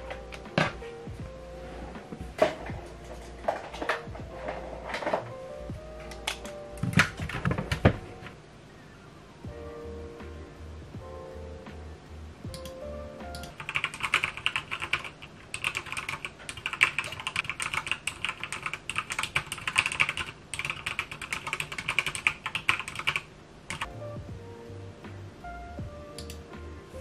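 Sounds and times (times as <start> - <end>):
fast typing on keyboard: 13.4 - 23.9.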